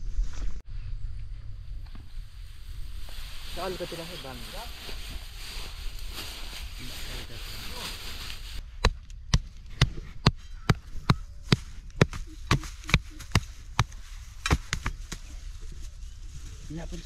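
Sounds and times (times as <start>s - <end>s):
steady hiss: 1.8s - 8.6s
hoe striking dry soil: 8.6s - 15.3s.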